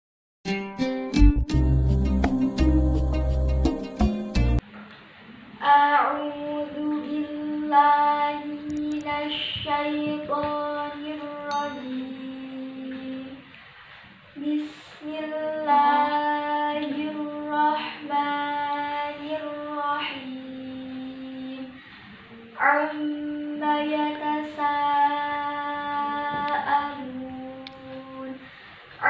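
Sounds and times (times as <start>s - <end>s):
girl chanting recitation: 5.6s - 13.4s, 14.4s - 28.4s.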